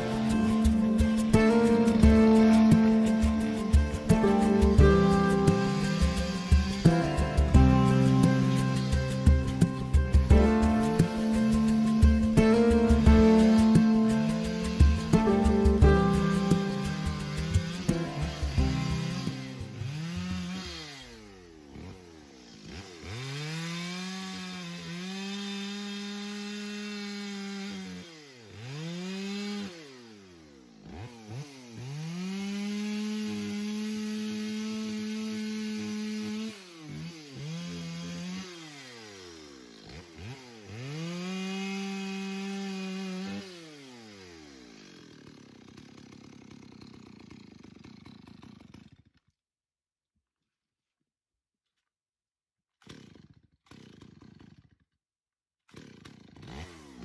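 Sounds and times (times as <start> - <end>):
chainsaw revving and cutting: 0.0 - 49.2, 52.8 - 54.9, 55.7 - 57.0.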